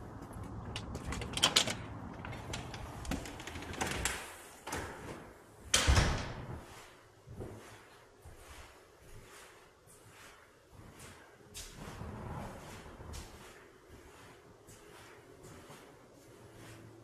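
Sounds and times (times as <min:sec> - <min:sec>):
door shutting with a thud: 0:05.7 - 0:06.6.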